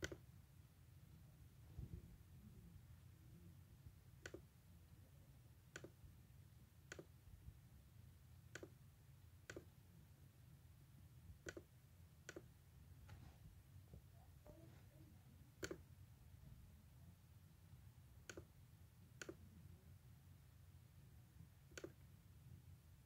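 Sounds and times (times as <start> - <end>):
computer mouse clicks: 0.0 - 0.3, 4.2 - 4.5, 5.7 - 6.0, 6.8 - 7.2, 8.5 - 8.8, 9.4 - 9.7, 11.4 - 12.5, 15.6 - 15.9, 18.2 - 18.6, 19.2 - 19.5, 21.7 - 22.1
low steady hum: 0.0 - 23.0.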